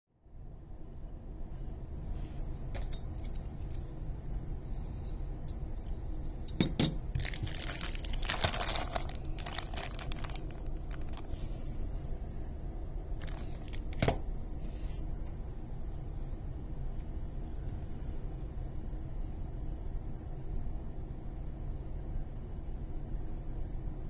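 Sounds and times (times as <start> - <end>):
cellophane crinkling and tearing: 7.1 - 11.6, 13.2 - 14.2.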